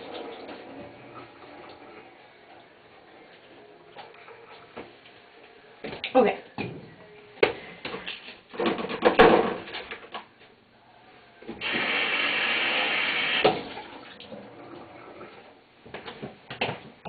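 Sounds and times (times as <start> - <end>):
kitchen tap running: 0.0 - 2.6, 11.6 - 15.6
knocks and clatters at sink: 7.9 - 10.2.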